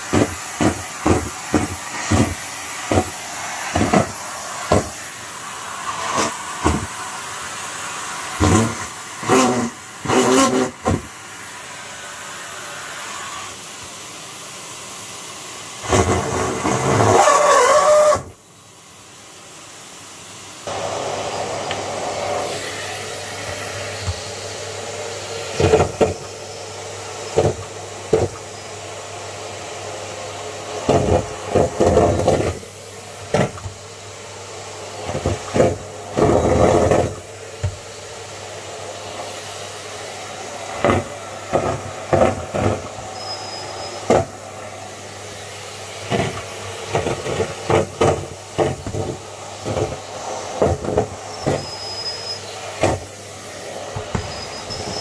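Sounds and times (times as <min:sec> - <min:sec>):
vacuum cleaner running: 0:00.0 - 0:55.0
balloons rattling in vacuum hose: 0:08.4 - 0:11.1.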